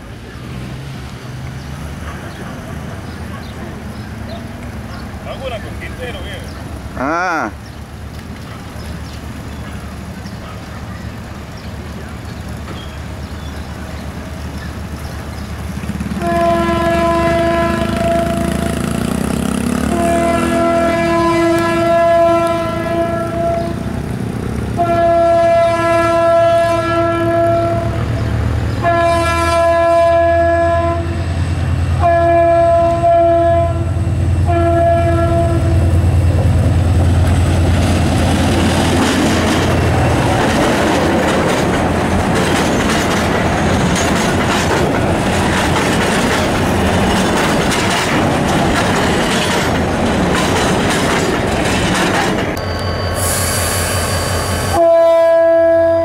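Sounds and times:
locomotive engine rumbling: 0:00.0 - 0:56.0
locomotive horn blasts: 0:16.2 - 0:18.8, 0:19.8 - 0:23.9, 0:24.8 - 0:28.0, 0:28.8 - 0:31.2, 0:32.0 - 0:36.0, 0:53.2 - 0:56.0
train wheels clattering: 0:36.2 - 0:52.8.

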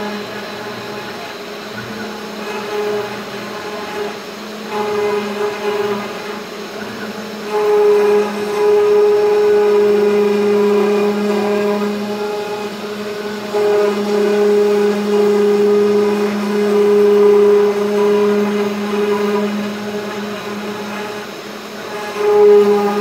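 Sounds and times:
router spindle whining: 0:00.0 - 0:23.0.

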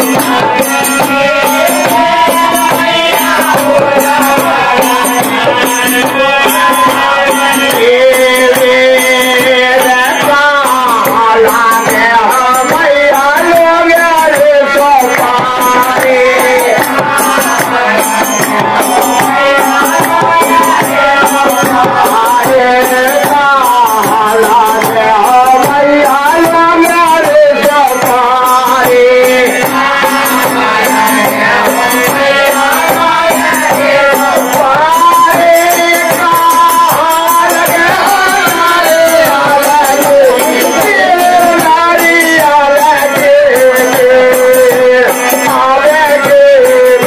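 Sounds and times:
rattling hand percussion: 0:00.0 - 0:47.0
voices singing devotional music: 0:00.0 - 0:47.0.

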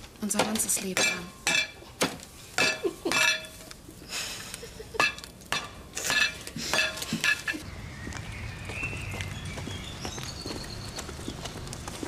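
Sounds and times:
dishes and cutlery clinking: 0:02.6 - 0:03.6, 0:05.0 - 0:07.6.

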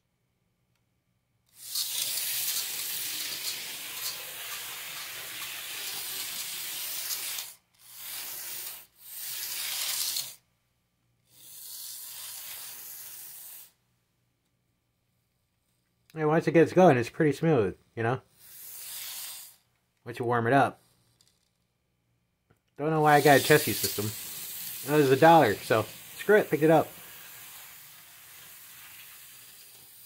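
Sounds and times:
model locomotive motor hiss: 0:01.5 - 0:10.4, 0:11.3 - 0:13.8, 0:18.3 - 0:19.7, 0:23.0 - 0:30.0.

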